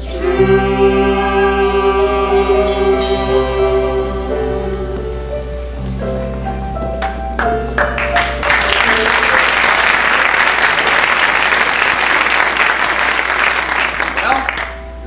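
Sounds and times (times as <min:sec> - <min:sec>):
stage-show music: 0:00.0 - 0:15.0
sharp percussion hits: 0:00.2 - 0:05.3
audience applause: 0:07.8 - 0:14.8.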